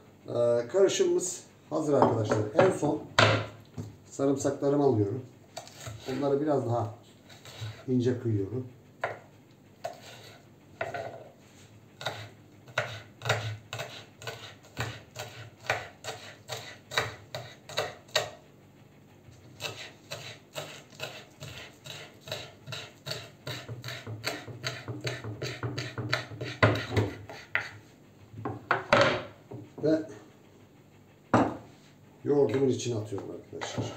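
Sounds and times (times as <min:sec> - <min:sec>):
knife chopping on wooden board: 0:02.0 - 0:03.9, 0:09.0 - 0:11.2, 0:12.0 - 0:18.4, 0:19.6 - 0:27.8.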